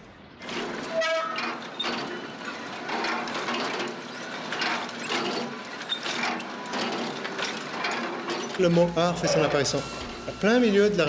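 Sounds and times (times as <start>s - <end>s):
scrap metal machinery clattering: 0.4s - 10.7s.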